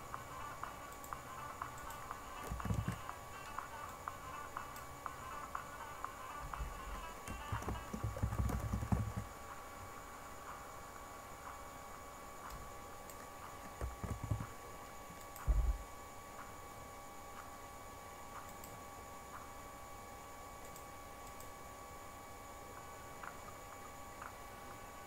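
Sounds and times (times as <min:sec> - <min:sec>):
electrical hum: 0:00.0 - 0:25.0.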